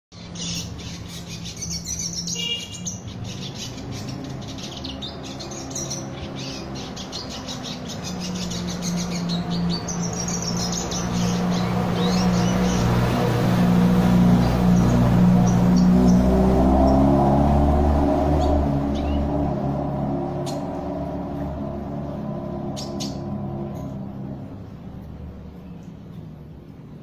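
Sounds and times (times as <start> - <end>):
bird chirping and trilling: 0.1 - 26.3.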